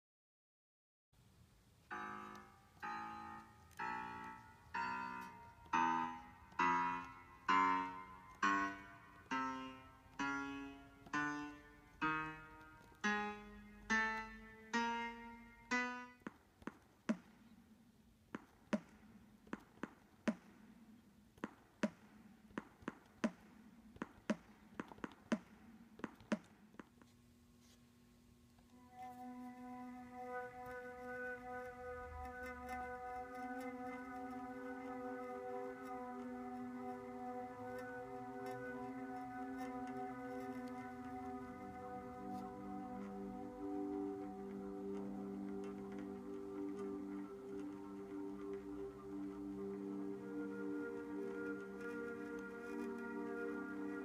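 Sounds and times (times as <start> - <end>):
electronic keyboard notes: 1.9 - 16.3, 28.7 - 54.0.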